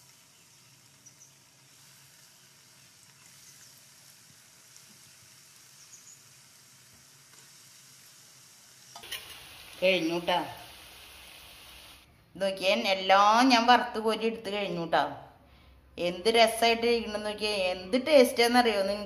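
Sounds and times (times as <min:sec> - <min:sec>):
deep-frying sizzle: 0:00.0 - 0:12.1.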